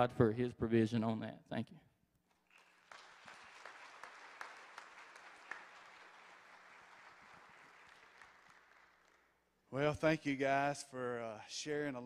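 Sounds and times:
congregation applauding: 2.3 - 10.0.

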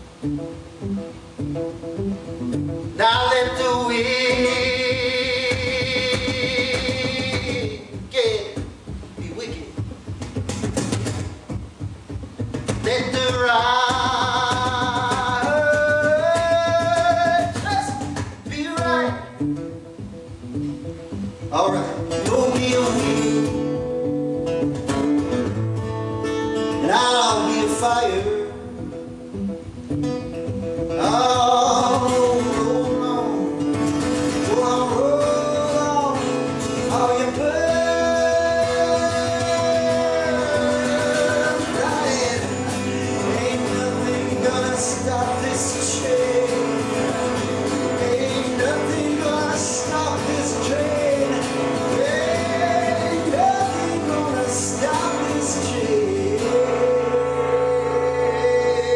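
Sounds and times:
acoustic guitar: 0.0 - 58.9
man singing: 2.9 - 9.8, 12.7 - 19.4, 21.4 - 23.9, 26.7 - 28.9, 30.9 - 58.9.

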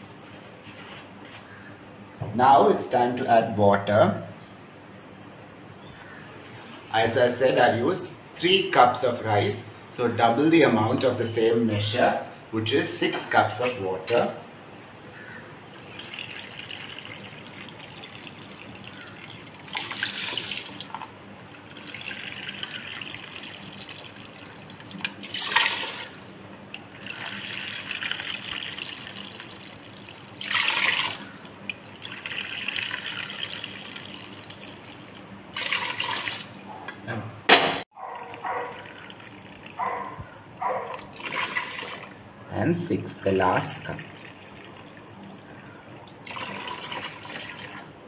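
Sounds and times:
water pouring into a cup: 15.7 - 36.6, 38.3 - 40.2, 41.0 - 42.2, 46.2 - 47.9.

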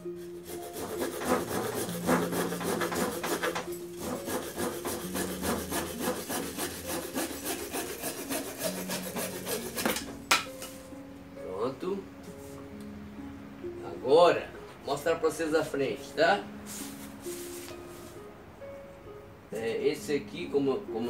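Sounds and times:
hand saw rasping through wood: 0.1 - 10.1.

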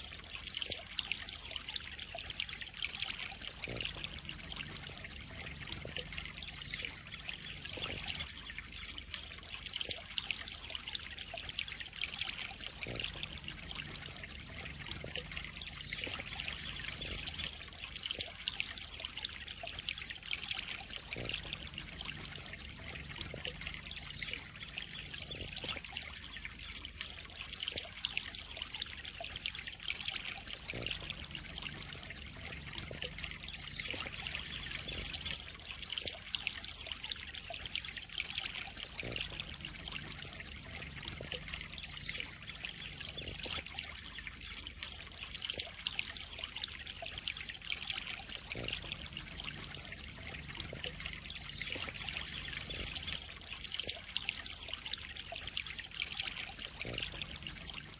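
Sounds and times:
water trickling into pond: 0.0 - 57.9.

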